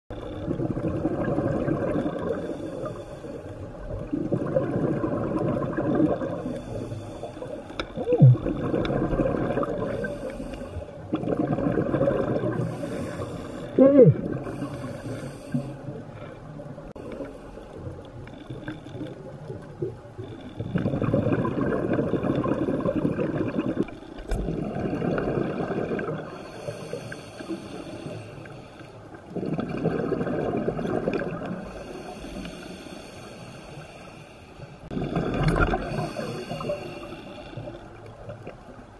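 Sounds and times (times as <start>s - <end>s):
exhaled bubbles bursting: 0.4s - 2.4s, 4.0s - 6.4s, 8.0s - 10.1s, 11.1s - 12.7s, 20.6s - 26.3s, 29.3s - 31.5s, 34.9s - 36.1s
diver inhaling through regulator: 2.2s - 3.8s, 6.2s - 8.8s, 9.6s - 11.1s, 12.2s - 16.4s, 26.0s - 29.1s, 31.6s - 37.9s.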